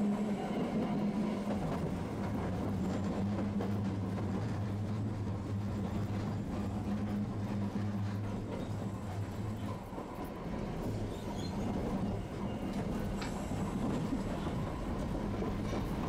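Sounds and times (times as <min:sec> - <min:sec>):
streetcar running on tracks: 0:00.0 - 0:16.0.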